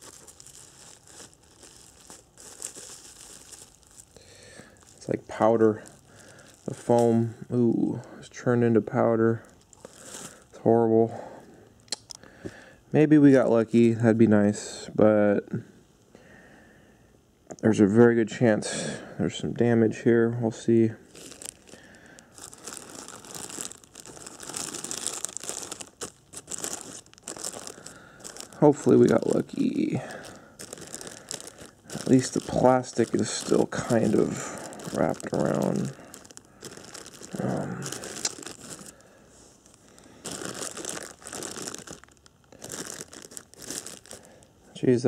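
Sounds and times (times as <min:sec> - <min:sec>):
plastic bag crinkling: 0:00.0 - 0:10.6, 0:20.5 - 0:44.8.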